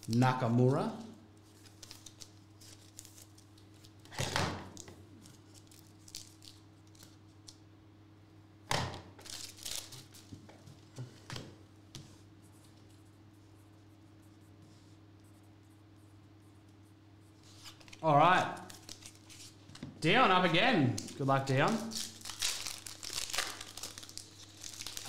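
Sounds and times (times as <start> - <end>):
low electrical hum: 0.0 - 25.0
cards rustling: 17.4 - 18.0, 18.6 - 19.8, 20.8 - 25.0.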